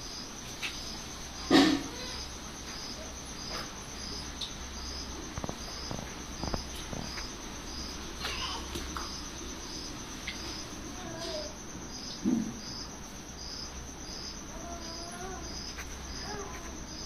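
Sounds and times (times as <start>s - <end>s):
insect chirping: 0.0s - 17.0s.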